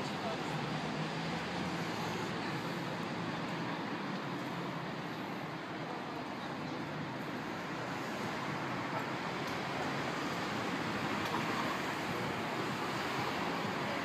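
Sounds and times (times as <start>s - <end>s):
traffic hum: 0.0s - 14.0s.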